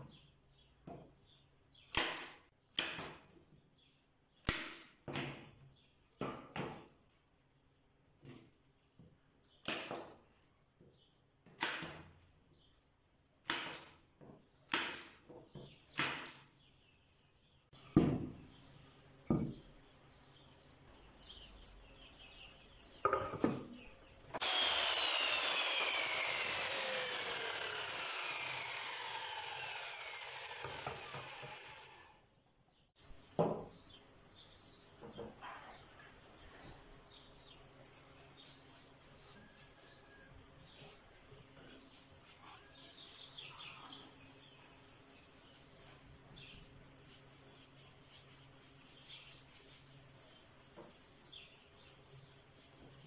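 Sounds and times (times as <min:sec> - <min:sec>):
miter saw winding down: 0:24.4 - 0:32.2.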